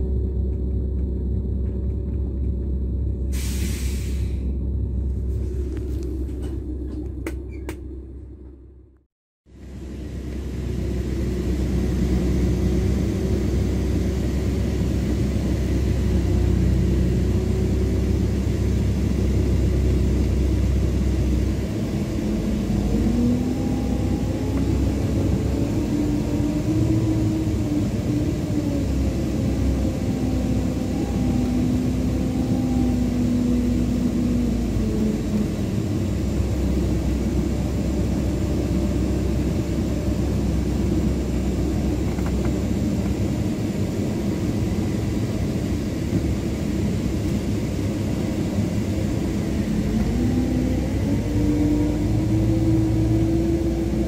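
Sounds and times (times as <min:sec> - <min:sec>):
diesel coach engine running: 0:00.0 - 0:54.0.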